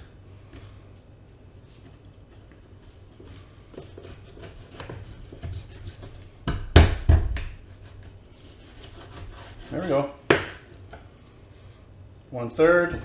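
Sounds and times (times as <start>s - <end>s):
knife cutting raw chicken: 3.8s - 6.1s, 7.9s - 10.6s.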